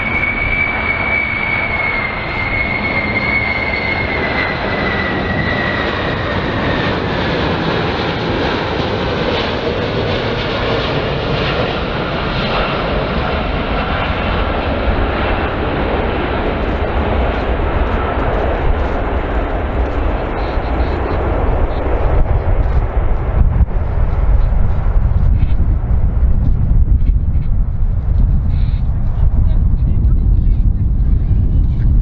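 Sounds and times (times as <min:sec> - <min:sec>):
jet engines rushing with fan whine: 0:00.0 - 0:32.0.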